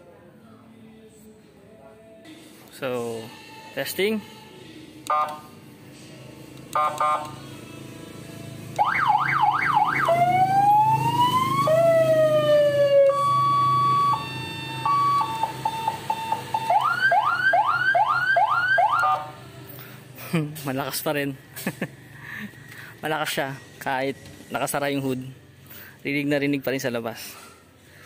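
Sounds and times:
car horn blips: 5.1s - 5.5s, 6.7s - 7.4s
electronic siren tones: 6.8s - 7.3s, 8.8s - 19.4s.

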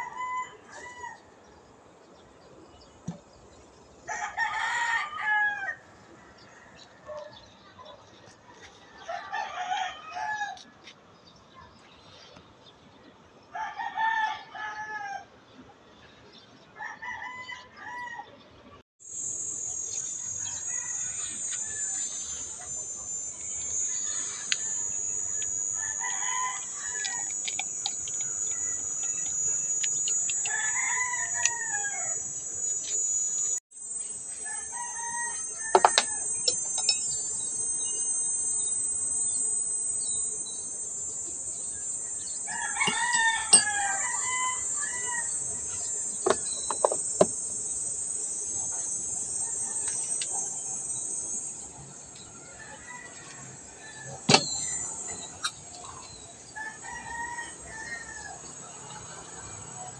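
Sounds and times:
roosters crowing: 0.0s - 1.4s, 4.0s - 7.1s, 8.5s - 10.8s, 13.5s - 15.4s, 16.8s - 18.4s, 19.4s - 33.6s, 34.2s - 59.9s
high-pitched insect drone: 19.0s - 59.9s
sharp click: 42.8s - 44.0s, 54.3s - 56.2s.

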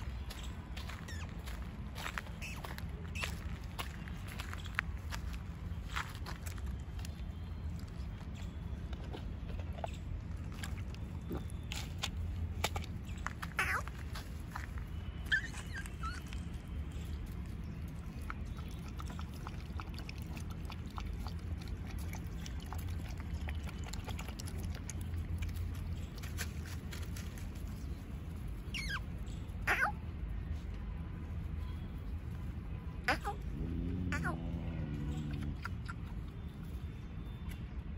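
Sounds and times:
puppy chirps: 1.0s - 1.4s, 2.3s - 3.4s, 13.4s - 14.2s, 15.1s - 16.6s, 28.6s - 30.0s, 35.2s - 36.4s
puppies whining: 13.5s - 14.0s, 15.2s - 16.6s, 28.7s - 29.0s, 29.7s - 30.0s.

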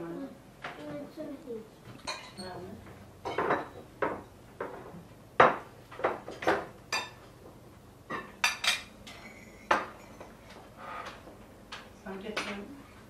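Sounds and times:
cutlery clinking on plates: 2.0s - 2.6s, 3.3s - 7.4s, 8.1s - 11.3s.

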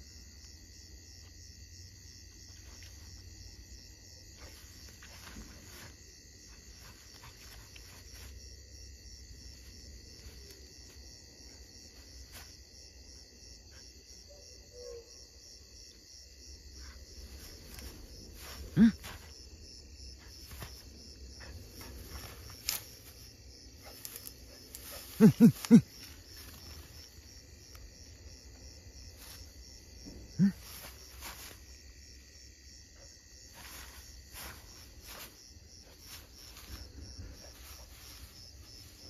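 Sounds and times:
crickets chirping: 0.0s - 39.0s
rustles through grass: 4.3s - 12.6s, 16.8s - 31.9s, 33.4s - 39.0s.

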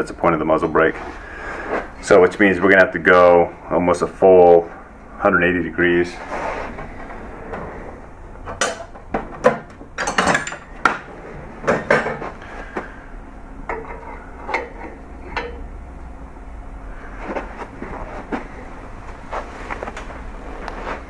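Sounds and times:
metal tools clinking: 10.0s - 10.7s.

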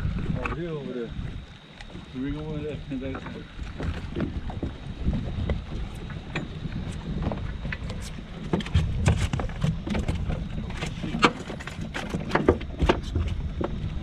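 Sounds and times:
wind rumble on microphone: 0.0s - 14.0s
fish thrashing and slapping: 3.1s - 14.0s.

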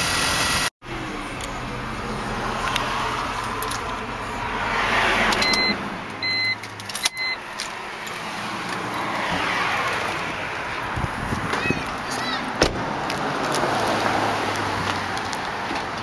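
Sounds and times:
short electronic beeps: 5.4s - 7.4s.

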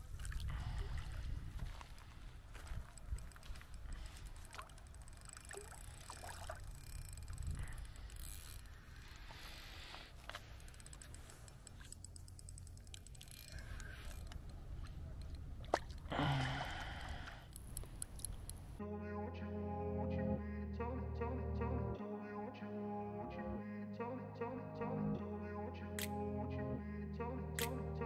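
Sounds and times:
water lapping around boat: 0.0s - 18.7s
sharp click: 27.6s - 27.8s.

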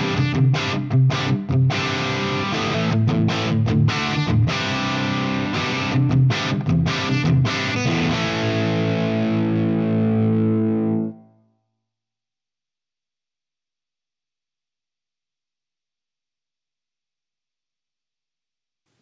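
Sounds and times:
overdriven electric guitar riff: 0.0s - 11.3s.

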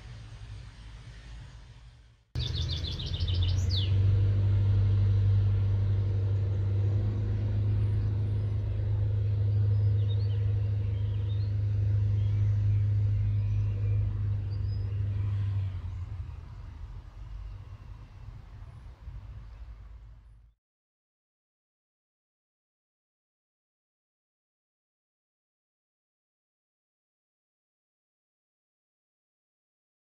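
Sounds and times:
train engine humming: 0.0s - 20.5s.

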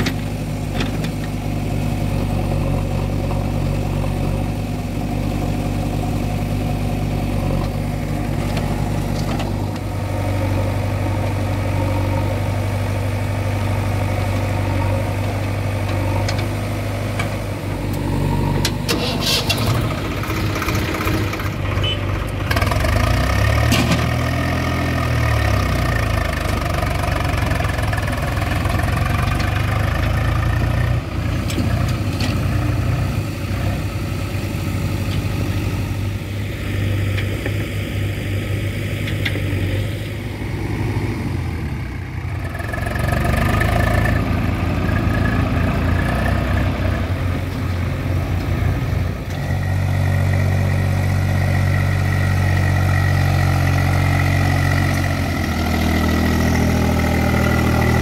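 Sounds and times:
diesel engines running: 0.0s - 58.0s.

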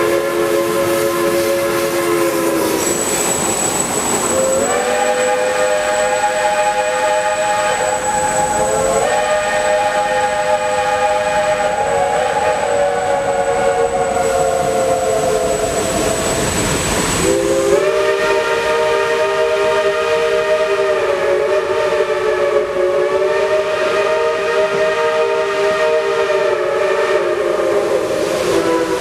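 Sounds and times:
rumble of passing rail cars: 0.0s - 29.0s
steam locomotive chime whistle: 0.0s - 29.0s.

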